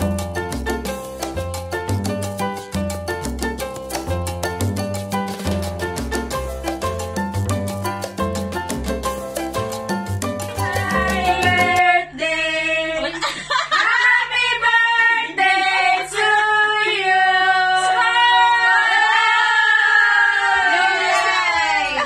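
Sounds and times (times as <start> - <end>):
women singing unaccompanied: 10.6 - 21.1.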